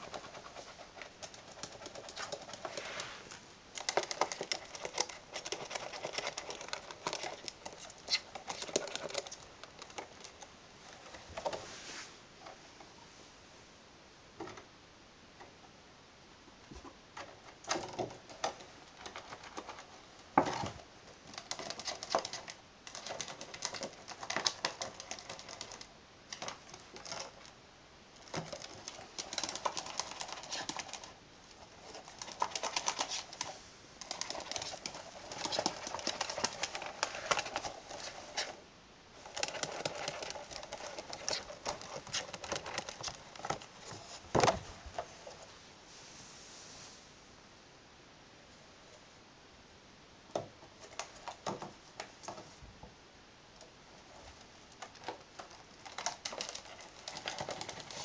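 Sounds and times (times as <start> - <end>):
ferret claws scratching plastic tube: 0.0 - 10.4, 28.3 - 38.6, 39.2 - 45.4, 54.1 - 58.0.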